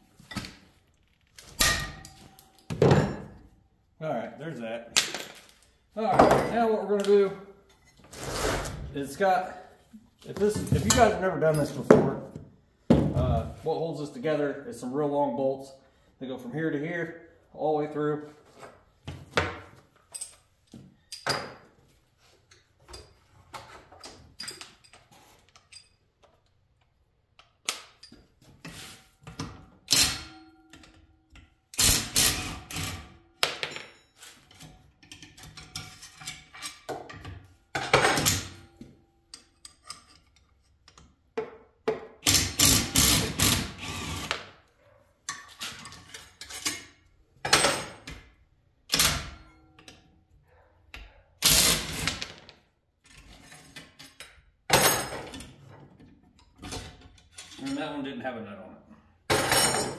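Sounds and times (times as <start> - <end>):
metal clicks of wrench and bolts: 39.3 - 41.2.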